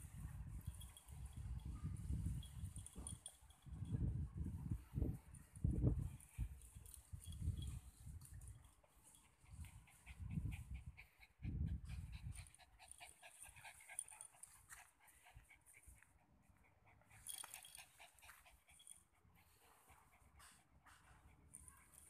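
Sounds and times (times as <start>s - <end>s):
dog panting: 8.9s - 22.0s.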